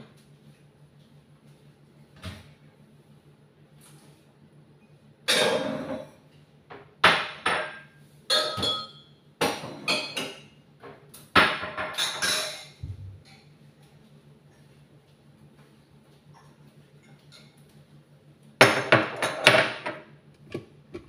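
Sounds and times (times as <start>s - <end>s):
glassware and dishes clinking: 7.6s - 10.5s.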